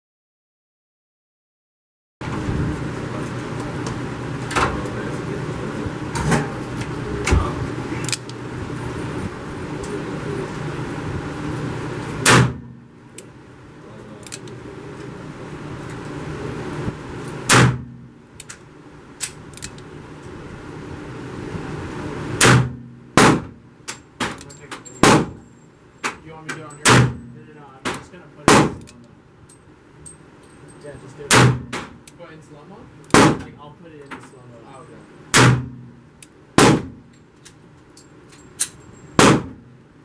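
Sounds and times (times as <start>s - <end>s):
steady background hum: 2.2s - 40.0s
gunshots with echo: 28.5s - 28.8s.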